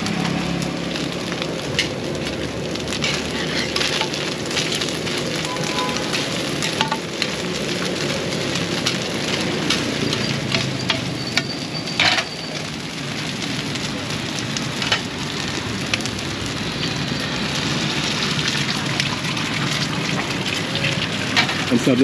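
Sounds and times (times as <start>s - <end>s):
rice cakes sizzling in hot oil: 0.0s - 22.0s
metal spatulas scraping a pan: 3.0s - 4.9s.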